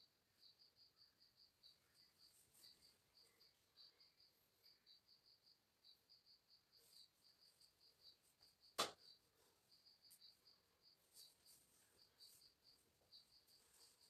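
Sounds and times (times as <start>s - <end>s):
cricket chirping: 0.0s - 14.0s
sharp tap: 8.8s - 9.0s.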